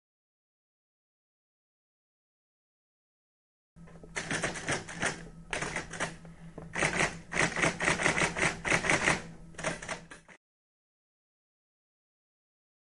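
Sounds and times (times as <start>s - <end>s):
faint steady hum: 3.8s - 10.4s
fast sharp clicking: 4.2s - 10.4s.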